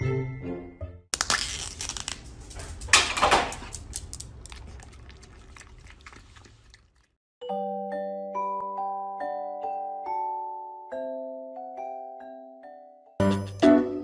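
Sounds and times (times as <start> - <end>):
foil lid crinkling and tearing: 1.2 - 2.9.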